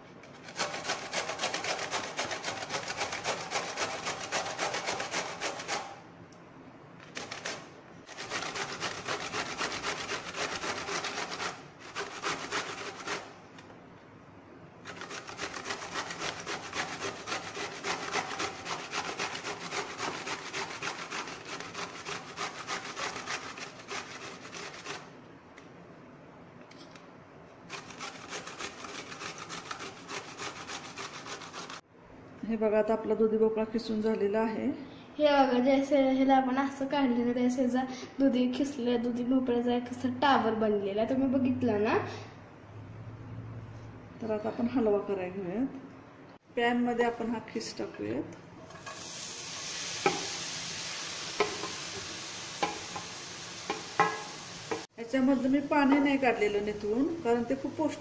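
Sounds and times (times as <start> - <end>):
gourd grated on metal grater: 0.3 - 6.0, 7.2 - 13.3, 14.8 - 25.1, 27.7 - 31.8.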